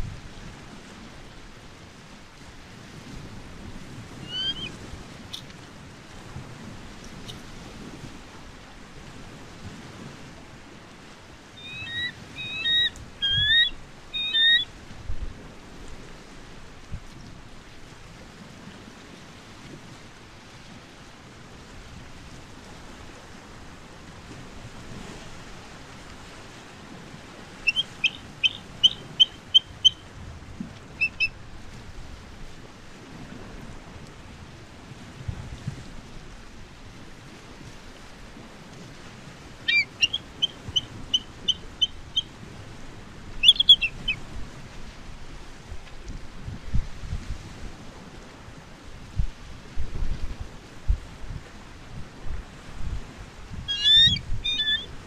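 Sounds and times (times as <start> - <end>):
surf: 0.0 - 55.0
wind noise: 0.0 - 55.0
eagle piping chirps: 4.2 - 4.8, 11.6 - 14.7, 27.6 - 30.0, 31.0 - 31.3, 39.7 - 42.4, 43.4 - 44.2, 53.7 - 55.0.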